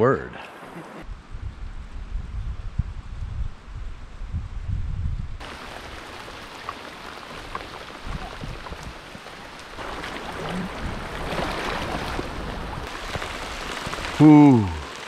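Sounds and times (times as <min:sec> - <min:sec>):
rain falling on river: 0:05.4 - 0:15.0
river current running: 0:05.4 - 0:15.0.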